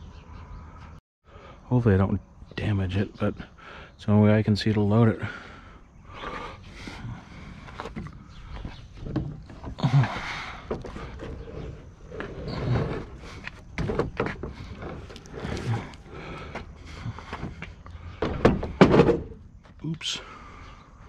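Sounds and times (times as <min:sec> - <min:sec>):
heavy metal machine clunking and scraping: 0:17.2 - 0:19.4.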